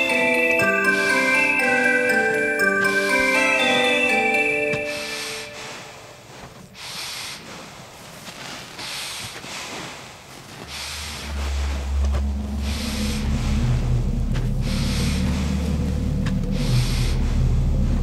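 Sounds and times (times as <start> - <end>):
close breathing: 0.0 - 18.0
loud low drone: 10.7 - 18.0.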